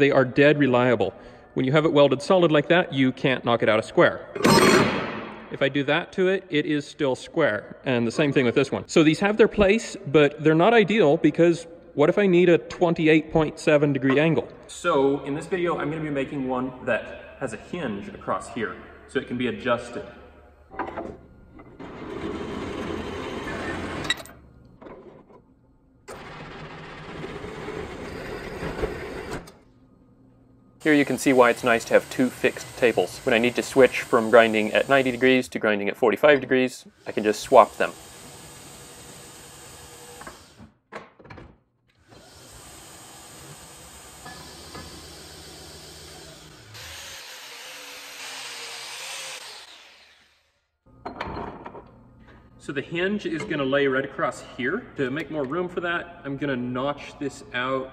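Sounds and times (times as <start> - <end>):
bandsaw running: 30.9 - 35.5, 37.0 - 40.6, 42.0 - 50.6
angle grinder grinding steel: 44.2 - 50.6.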